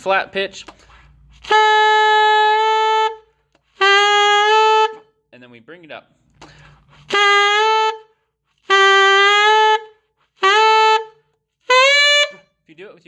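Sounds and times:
saxophone scooping notes: 0.7s - 5.0s, 6.4s - 12.4s.

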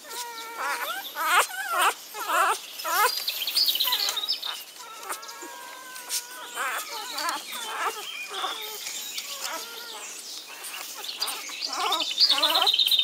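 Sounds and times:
puppy crying and squealing: 0.0s - 3.2s, 3.8s - 13.0s.

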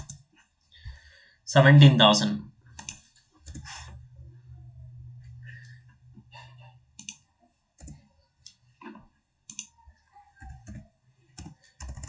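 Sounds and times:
keyboard and mouse clicks: 0.0s - 0.3s, 2.7s - 4.0s, 7.0s - 7.2s, 7.8s - 12.0s.

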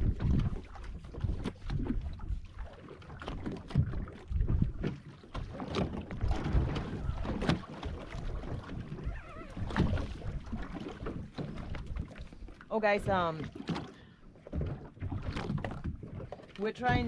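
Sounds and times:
water lapping against boat hull: 0.0s - 17.0s
wind buffeting microphone: 6.0s - 12.0s.

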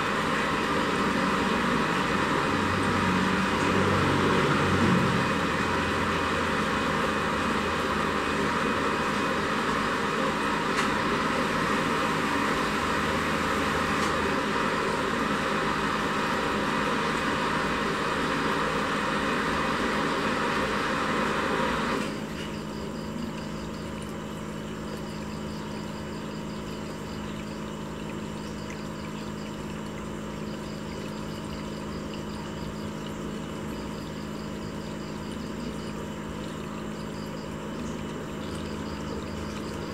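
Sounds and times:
aquarium filter pump humming: 0.0s - 39.9s
water trickling: 22.2s - 39.9s.

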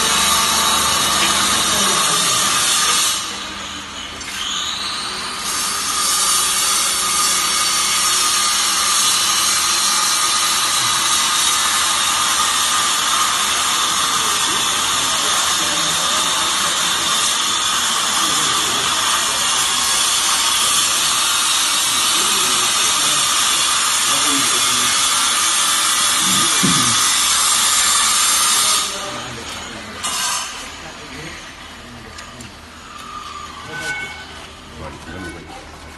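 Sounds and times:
baler motor and pump whining: 0.0s - 30.0s.

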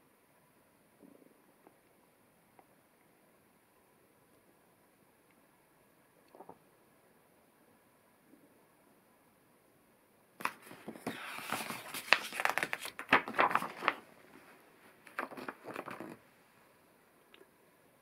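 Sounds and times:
book page turning: 10.4s - 16.2s.

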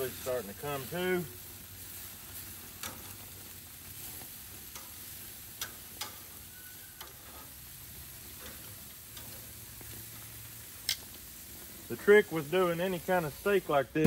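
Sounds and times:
meat sizzling on a grill: 0.0s - 14.0s
metal tongs clicking on grate: 2.8s - 3.2s, 4.7s - 6.3s, 7.0s - 7.5s, 8.4s - 9.4s, 10.8s - 11.1s.

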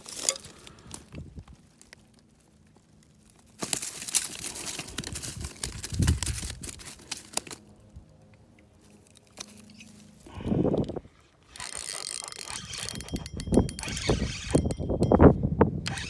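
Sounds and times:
rustling and crinkling handling: 0.0s - 12.4s.

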